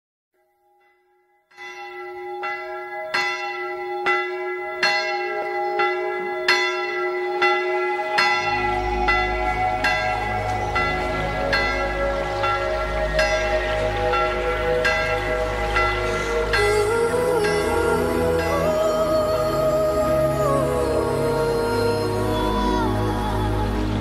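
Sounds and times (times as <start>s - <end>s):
church bell ringing: 0.7s - 23.0s
low rumble: 7.5s - 24.0s.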